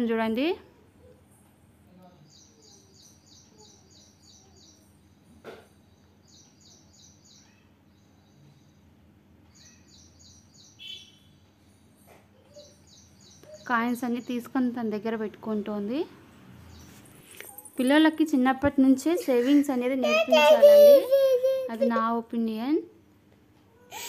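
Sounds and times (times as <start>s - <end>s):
bird chirping: 2.0s - 14.9s.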